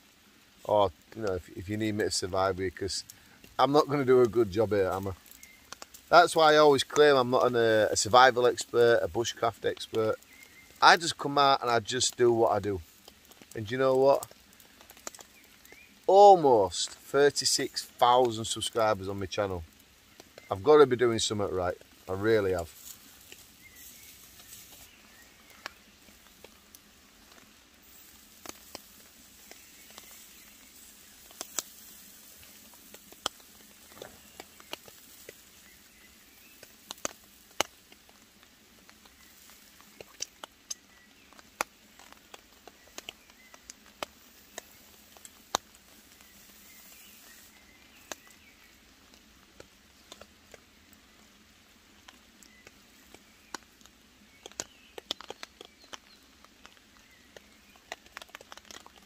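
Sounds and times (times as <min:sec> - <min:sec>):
faint steady hiss: 0:00.0 - 0:59.0
raindrops tapping on leaves: 0:00.0 - 0:59.0.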